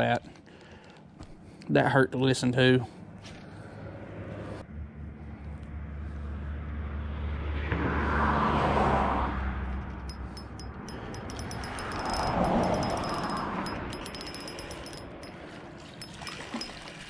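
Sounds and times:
vehicles passing: 2.8s - 16.0s
traffic rumble on bridge: 3.0s - 16.8s
fishing reel ticking: 9.9s - 15.4s.

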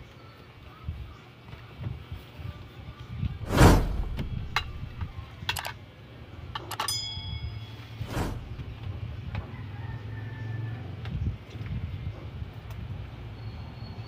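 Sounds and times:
whoosh effect: 3.4s - 5.1s, 8.0s - 8.7s
low hum: 3.4s - 5.2s, 8.0s - 8.8s
bell ding: 6.9s - 8.0s.

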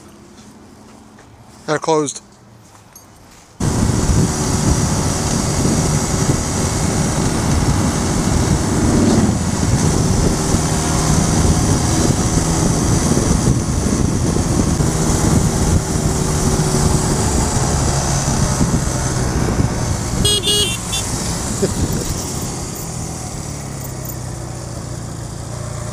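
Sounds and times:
wind rush on microphone: 3.6s - 23.0s
motorcycle engine running: 3.6s - 25.9s.

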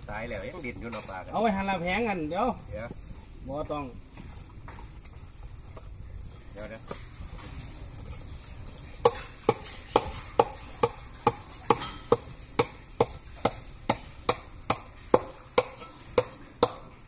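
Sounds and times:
knife chopping on a board: 9.0s - 16.9s.

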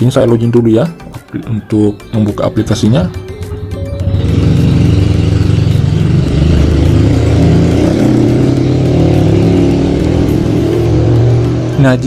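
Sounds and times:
vehicle engine running: 3.5s - 12.0s.

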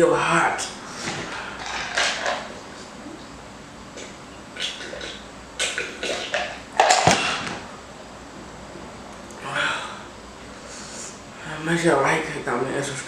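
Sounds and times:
person gulping a drink: 4.0s - 7.5s
person breathing: 9.5s - 11.4s.

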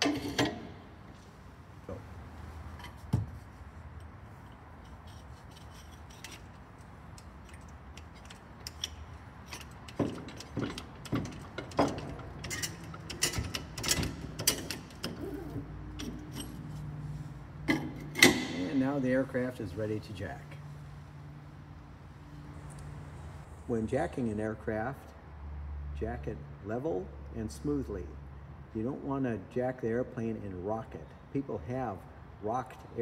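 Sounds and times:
jack handle clicking and clanking: 0.0s - 0.8s, 4.8s - 16.7s, 17.6s - 18.8s.

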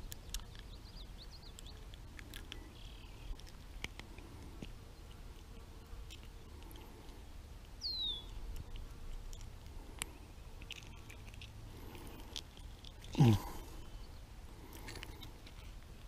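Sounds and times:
falling bird chirp: 7.8s - 8.4s.

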